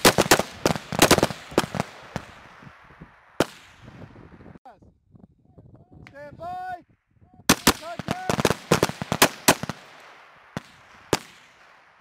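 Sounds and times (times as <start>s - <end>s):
rifle shots: 0.0s - 2.6s, 3.4s - 3.9s, 7.5s - 12.0s
gunshot echo: 3.4s - 3.9s, 7.5s - 12.0s.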